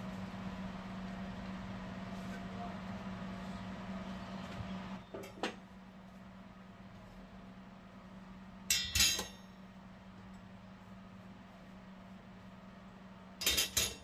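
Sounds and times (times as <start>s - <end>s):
faint steady hum: 0.0s - 14.0s
metal grates clattering: 13.4s - 14.0s.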